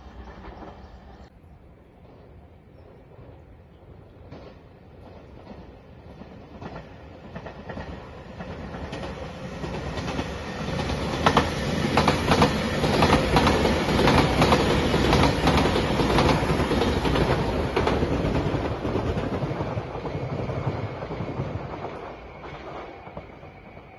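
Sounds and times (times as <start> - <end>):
electric train passing: 0.0 - 23.9.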